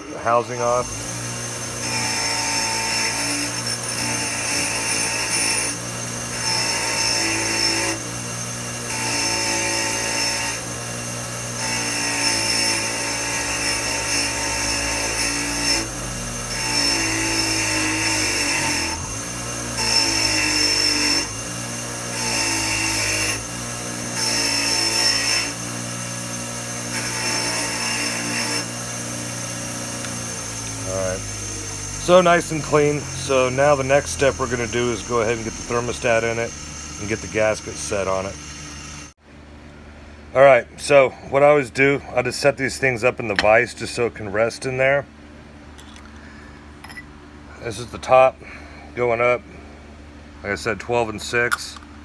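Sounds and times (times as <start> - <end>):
wire wheel scrubbing metal: 0.0 - 39.1
bench grinder motor hum: 0.0 - 39.2.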